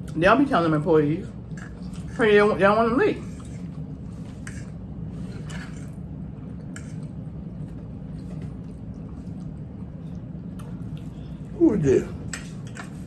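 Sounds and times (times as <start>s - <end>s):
chewing: 6.6s - 11.6s.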